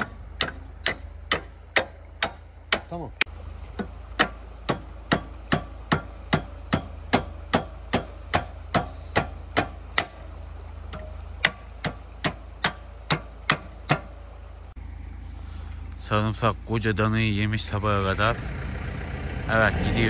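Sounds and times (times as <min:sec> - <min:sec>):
hammer striking metal pin: 0:00.0 - 0:02.9
low hum: 0:00.0 - 0:20.0.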